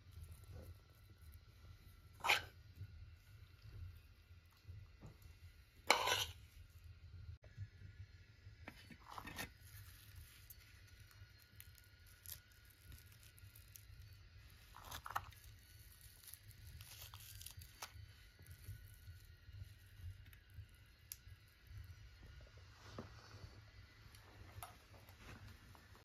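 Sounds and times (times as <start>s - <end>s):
faint tearing or crunching: 9.1s - 19.0s.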